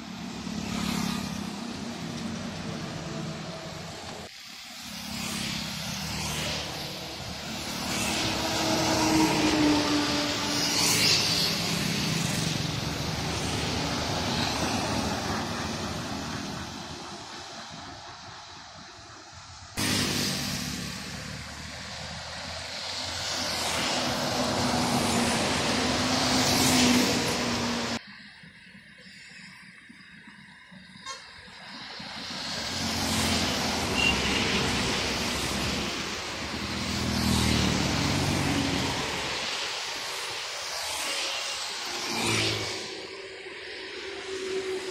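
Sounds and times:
truck passing: 0.0 - 18.8, 19.8 - 28.0, 32.4 - 40.4
motorcycle engines: 0.0 - 28.1, 31.0 - 44.9.

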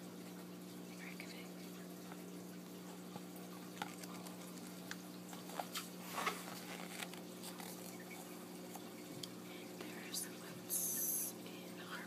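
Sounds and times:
faint steady hum: 0.0 - 12.0
paper pages turning: 3.8 - 8.0.

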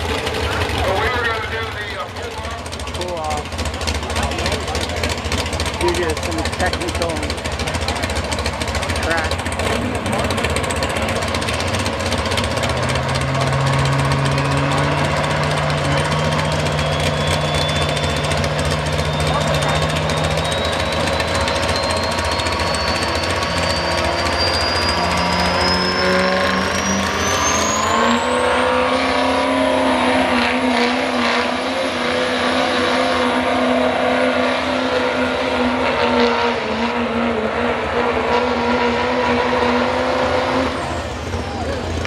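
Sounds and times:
truck engine at full throttle: 0.0 - 42.0
high whine: 15.5 - 32.0.

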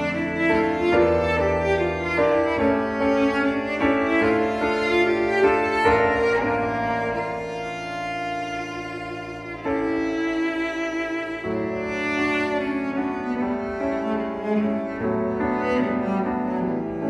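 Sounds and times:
bowed strings melody: 0.0 - 17.0
piano: 0.0 - 17.0.

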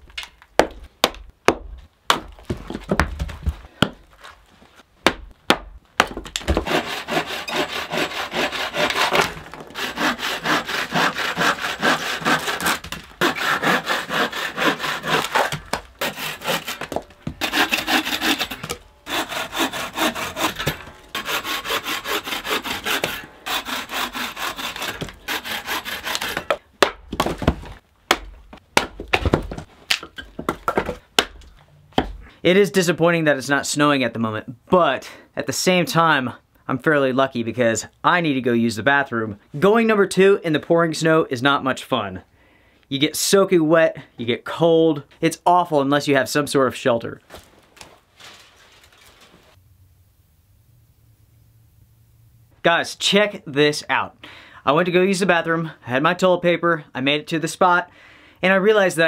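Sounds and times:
hatchet chopping wood: 0.6 - 3.2, 5.0 - 32.2
bow saw cutting log: 6.5 - 26.6.

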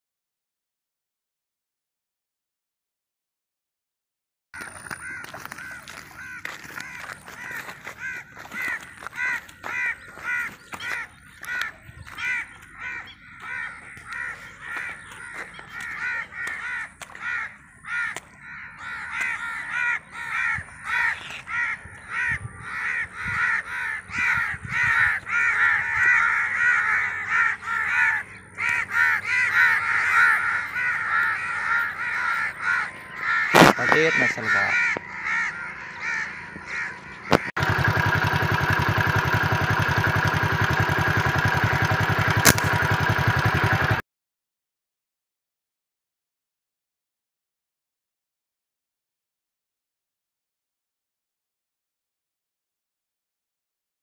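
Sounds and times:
birds cawing: 4.6 - 44.0
sharp knock: 33.6 - 33.8, 42.4 - 42.7.

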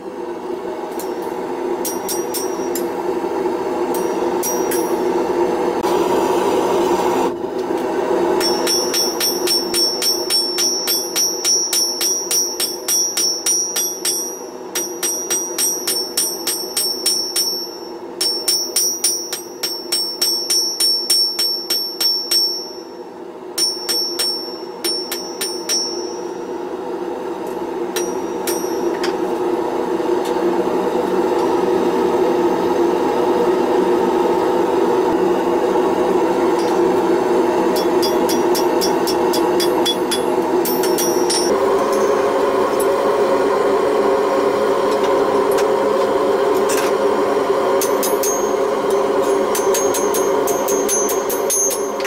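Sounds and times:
forge burner roaring: 0.0 - 52.0
hammer ringing on anvil: 0.9 - 3.2, 3.9 - 5.4, 8.4 - 26.6, 27.9 - 29.3, 36.6 - 37.0, 37.6 - 42.9, 47.8 - 52.0.

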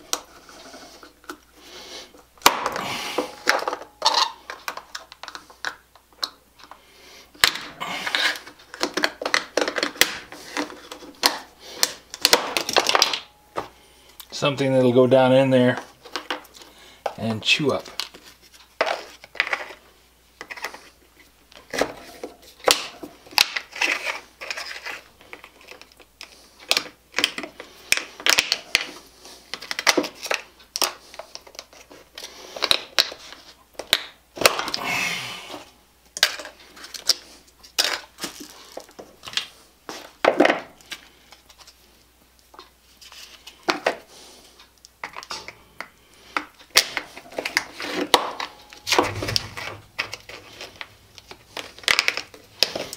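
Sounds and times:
plastic snapping and cracking: 7.4 - 13.3, 22.6 - 28.9, 33.8 - 34.8, 46.3 - 52.9.

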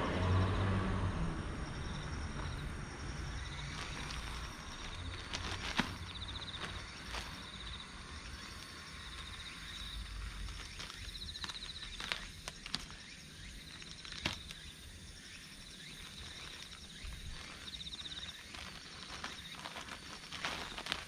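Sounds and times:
insect trilling: 1.7 - 21.0
fertilizer rustling onto soil: 3.2 - 13.1, 15.9 - 21.0.

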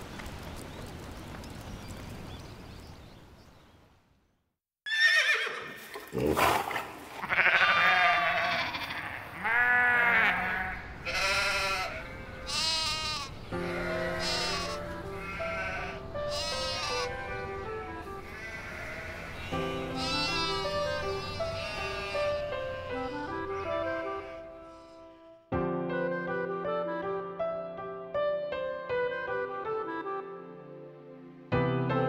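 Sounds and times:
goats bleating: 7.2 - 17.5, 18.2 - 25.1
soft music with low held notes: 13.4 - 32.0.

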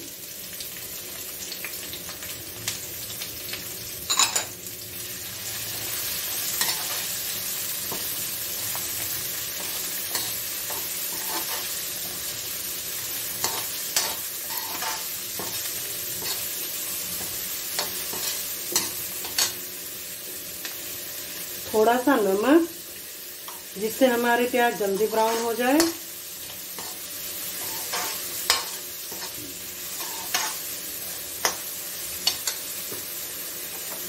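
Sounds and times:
onions sizzling in hot oil: 0.0 - 34.0
metal spatula scraping and clinking pan: 13.4 - 15.6, 27.6 - 29.4, 30.0 - 30.6
spatula clanking on pan: 13.4 - 16.4, 27.6 - 29.4, 32.2 - 32.6.

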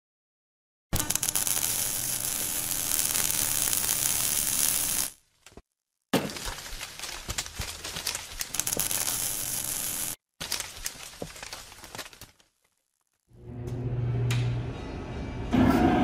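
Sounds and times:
loud hiss: 1.0 - 5.1, 8.6 - 10.2
machine hum: 1.0 - 5.2, 8.6 - 10.2.

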